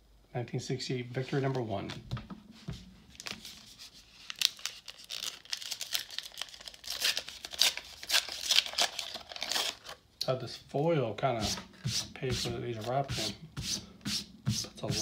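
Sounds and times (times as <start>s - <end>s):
foil wrapper tearing and crinkling: 3.2s - 10.0s.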